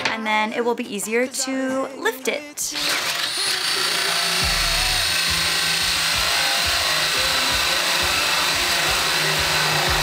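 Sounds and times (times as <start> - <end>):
drill boring into wood: 2.8 - 10.0.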